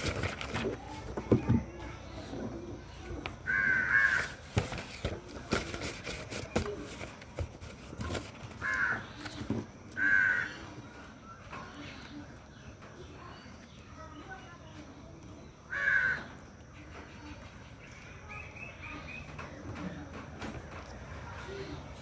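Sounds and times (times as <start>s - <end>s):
crow cawing: 3.4s - 4.4s, 8.6s - 9.2s, 10.0s - 10.7s, 15.7s - 16.3s.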